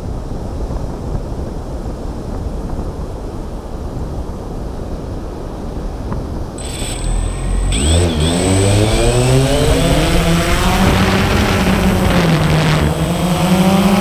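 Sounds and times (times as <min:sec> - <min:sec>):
wind buffeting microphone: 0:00.0 - 0:14.0
drone motors whining: 0:06.6 - 0:14.0.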